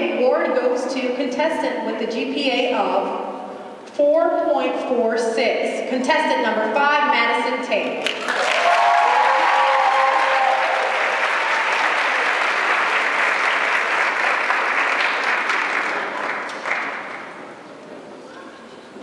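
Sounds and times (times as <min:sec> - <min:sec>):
audience applauding: 0:08.0 - 0:17.4
people cheering: 0:08.1 - 0:17.0.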